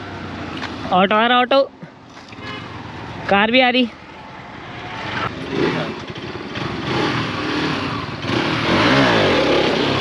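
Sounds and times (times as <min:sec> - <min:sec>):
motorcycle engine revving: 0:04.3 - 0:10.0.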